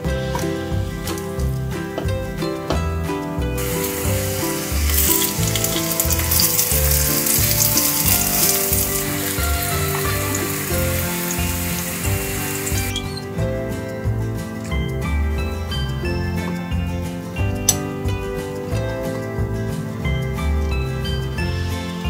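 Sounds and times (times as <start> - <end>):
background music with beat: 0.0 - 22.0
apple slices sizzling in pan: 3.6 - 13.1.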